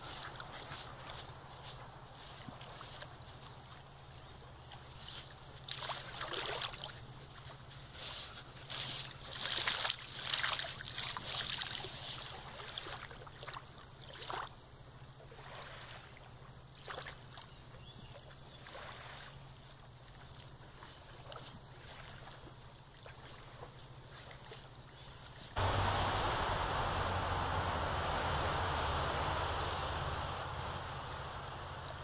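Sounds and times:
steady low hum: 0:25.6 - 0:32.0.

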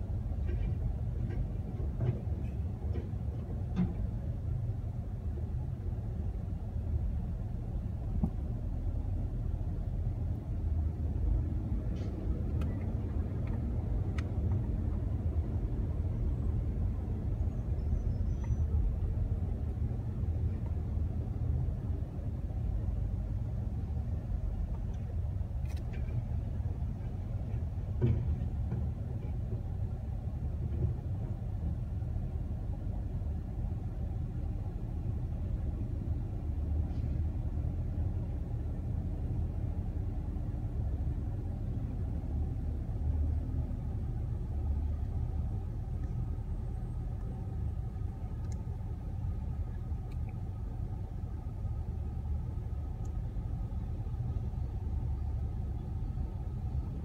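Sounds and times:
garbage truck diesel engine rumble: 0:00.0 - 0:57.0
faint clicks: 0:48.2 - 0:48.7, 0:49.7 - 0:50.4.

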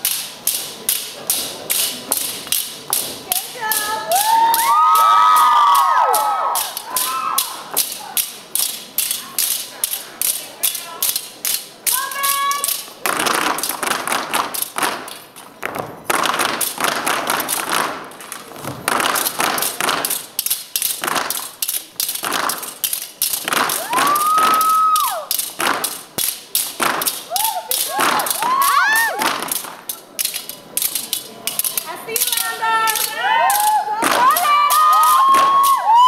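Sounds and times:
machetes tapping: 0:00.0 - 0:05.9, 0:06.5 - 0:35.9
audience whooping: 0:04.0 - 0:07.7, 0:23.7 - 0:25.4, 0:27.3 - 0:29.2, 0:33.3 - 0:36.0
boots stomping on wooden stage: 0:13.0 - 0:20.2.

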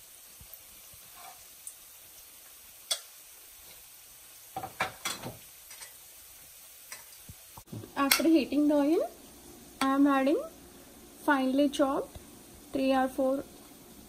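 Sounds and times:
oil sizzling in a wok: 0:00.0 - 0:14.0.

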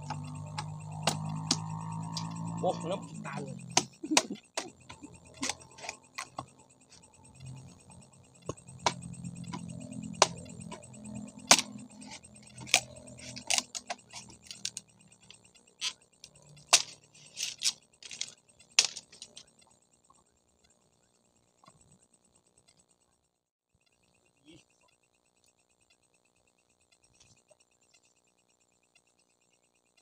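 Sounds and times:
machete striking wooden pole: 0:00.0 - 0:02.3.

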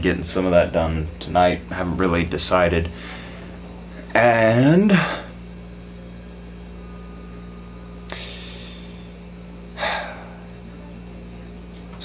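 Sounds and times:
low electrical hum: 0:00.0 - 0:12.0
man breathing: 0:02.9 - 0:04.1, 0:06.8 - 0:10.5.

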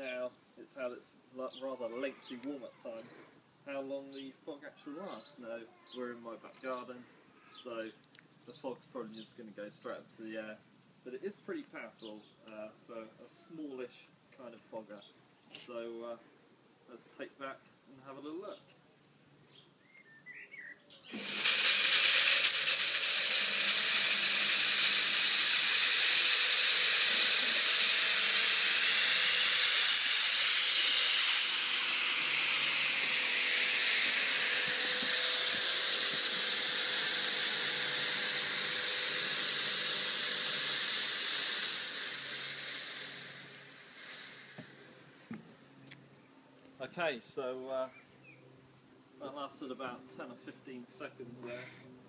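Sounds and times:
fog machine hissing: 0:21.1 - 0:45.0.

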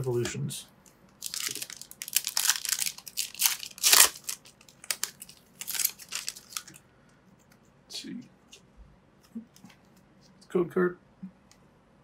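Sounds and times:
crackling tears and rustles: 0:01.2 - 0:06.8
foil wrapper tearing and crinkling: 0:01.2 - 0:06.8.

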